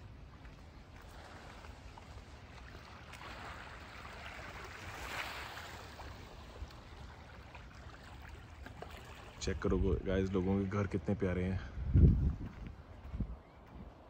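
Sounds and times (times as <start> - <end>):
wind rumble on microphone: 9.4 - 14.0.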